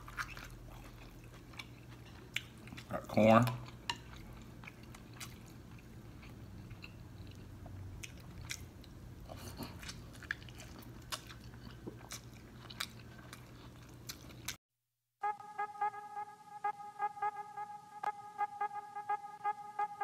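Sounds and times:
person chewing corn on the cob: 0:00.0 - 0:14.6.

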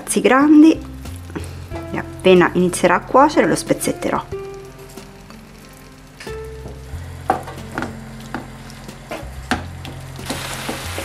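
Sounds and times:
sauce sizzling in a frying pan: 0:00.0 - 0:11.0
wooden spatula knocking on pan: 0:06.6 - 0:10.9.

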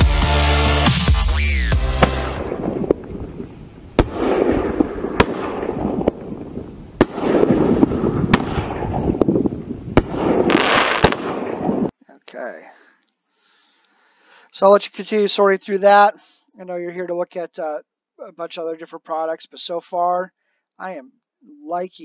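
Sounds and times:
firework shells banging: 0:02.0 - 0:11.7.

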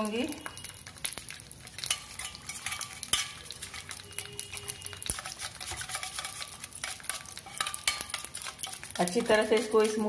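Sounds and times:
whisk clattering in metal bowl: 0:01.8 - 0:03.9, 0:05.1 - 0:10.0.

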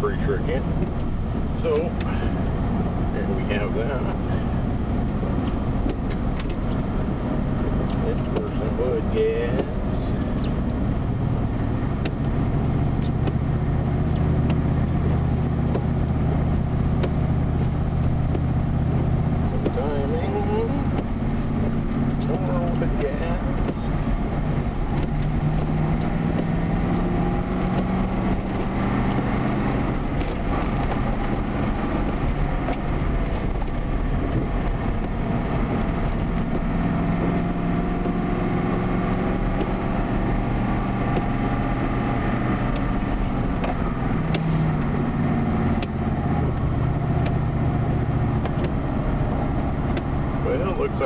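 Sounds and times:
fuel switch and lever clicks: 0:17.0 - 0:18.5, 0:45.7 - 0:47.5, 0:48.3 - 0:48.9.

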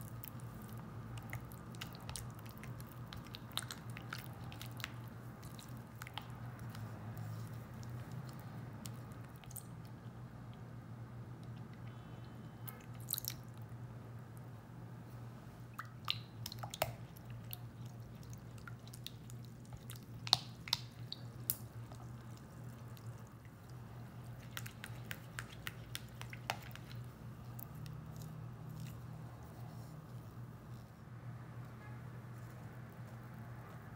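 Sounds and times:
spatula stirring wet batter: 0:00.0 - 0:09.6, 0:16.1 - 0:30.0.

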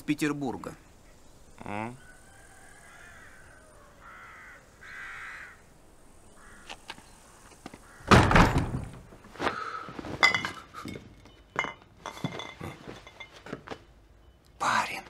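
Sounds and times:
heavy thud: 0:08.1 - 0:09.1
glass and crockery clinking: 0:10.2 - 0:13.6.

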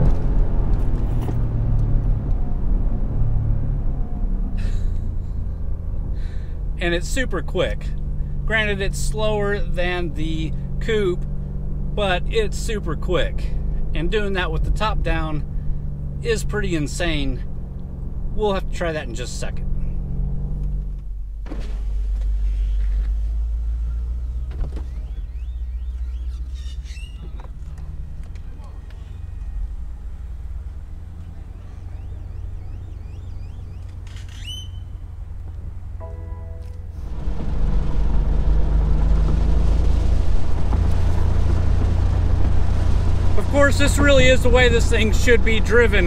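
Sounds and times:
car engine running: 0:00.0 - 0:46.0
wind and road rumble: 0:00.0 - 0:46.0
loud exhaust: 0:02.5 - 0:07.0, 0:34.6 - 0:46.0.

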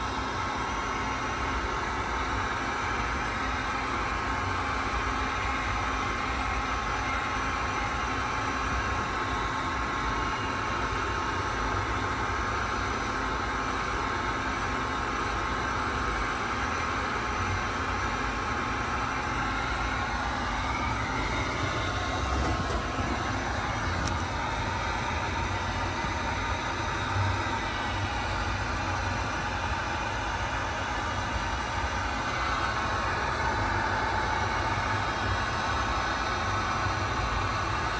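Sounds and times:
machine rushing and whining: 0:19.6 - 0:29.8.

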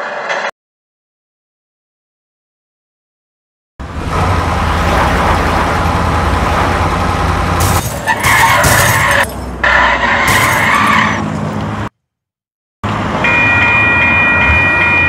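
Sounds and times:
engine running steadily: 0:03.8 - 0:09.7
crashing noises: 0:07.5 - 0:11.7
tyre squeals: 0:08.0 - 0:11.3.

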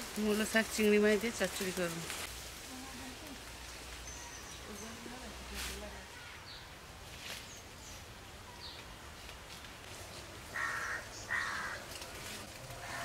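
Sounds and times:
bird harsh calls: 0:10.6 - 0:11.8.

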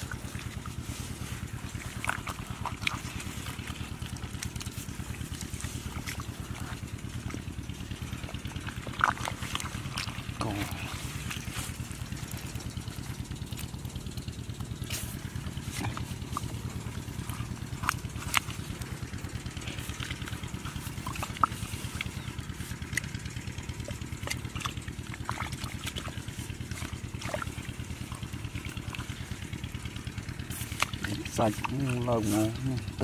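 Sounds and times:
hand squelching through mud: 0:00.0 - 0:33.0
small engine idling: 0:00.0 - 0:33.0.

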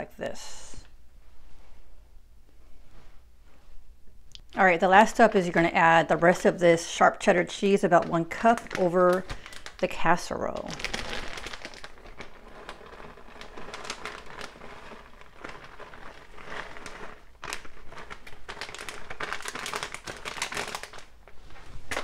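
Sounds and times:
plastic bag crinkling: 0:04.6 - 0:22.0.

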